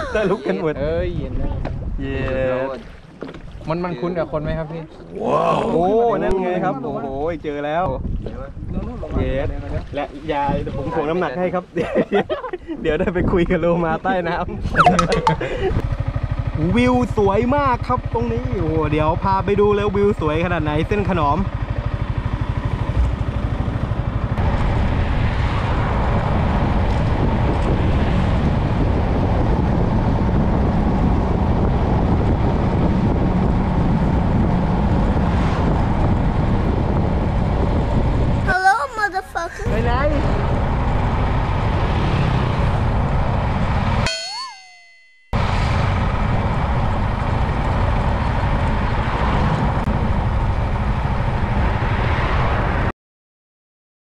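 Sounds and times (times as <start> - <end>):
wind rushing over microphone: 0.0 - 2.8, 7.1 - 17.8, 18.4 - 44.1, 45.3 - 52.9
motorcycle engine: 15.2 - 38.4, 39.7 - 52.2.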